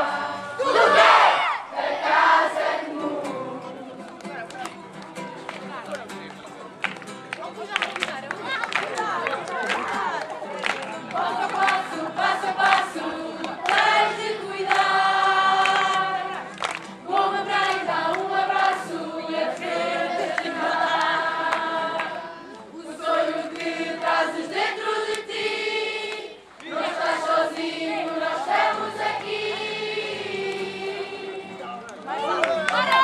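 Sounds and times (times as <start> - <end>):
group singing together: 0.0 - 4.1, 11.1 - 31.8.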